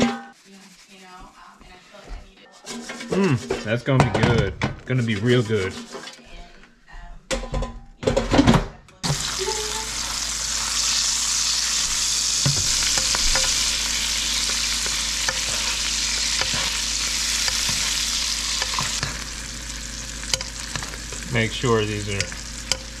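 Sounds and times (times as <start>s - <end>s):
fish sizzling in butter: 0.0s - 1.7s, 9.0s - 23.0s
spoon clicking against pan: 22.2s - 23.0s.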